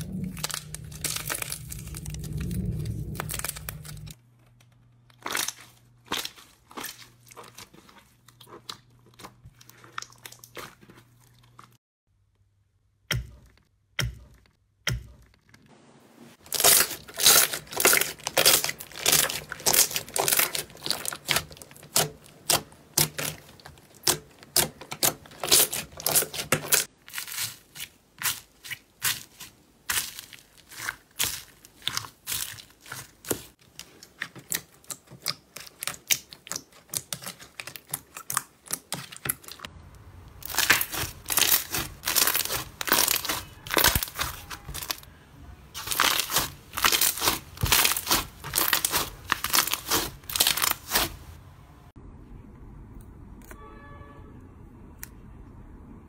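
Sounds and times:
slime crackling and popping: 0.0s - 4.2s, 16.4s - 45.0s, 45.8s - 51.2s.

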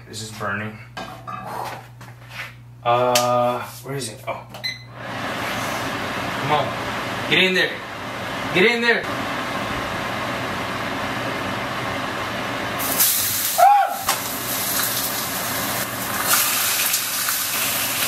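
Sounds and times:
oil sizzling in a frying pan: 12.8s - 18.0s.

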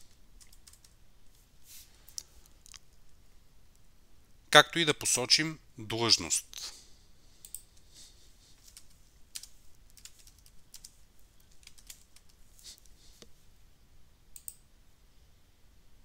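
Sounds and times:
faint keyboard typing: 0.0s - 1.4s, 7.4s - 13.4s, 14.3s - 14.7s
mouse clicks: 14.4s - 14.6s.

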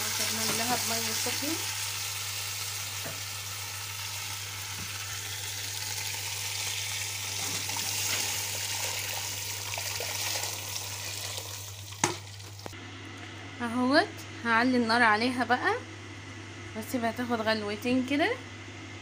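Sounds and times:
water poured into hot oil sizzling: 0.0s - 12.8s.

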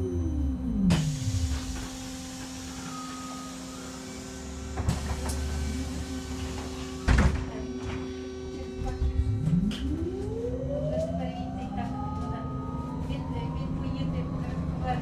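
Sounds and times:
trolleybus electrical hum: 0.0s - 15.0s
low rumble: 8.5s - 15.0s.

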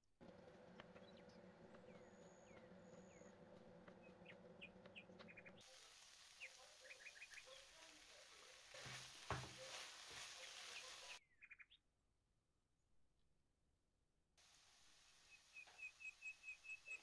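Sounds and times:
vegetables sizzling in a pan: 5.6s - 11.2s
knock on pan: 8.8s - 9.8s
faint bird chirps: 9.6s - 11.8s.

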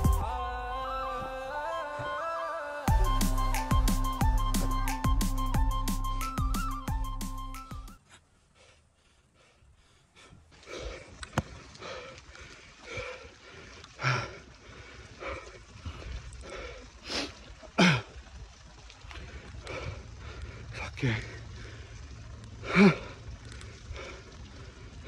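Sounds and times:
cyclist breathing hard: 8.0s - 25.0s.

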